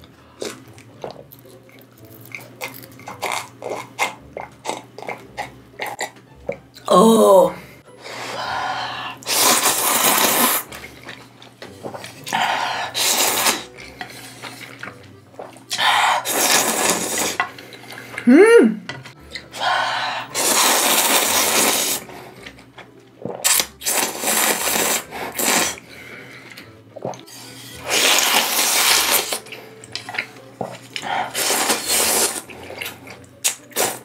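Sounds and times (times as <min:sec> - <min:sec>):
noodles slurping: 0:09.0 - 0:18.2, 0:19.4 - 0:34.0.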